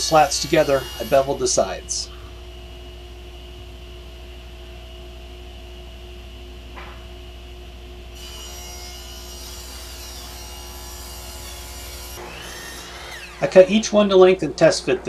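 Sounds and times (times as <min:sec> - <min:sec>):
saw blade cutting wood: 0:00.0 - 0:01.6, 0:08.2 - 0:13.8
table saw motor hum: 0:00.0 - 0:02.0, 0:08.2 - 0:13.9.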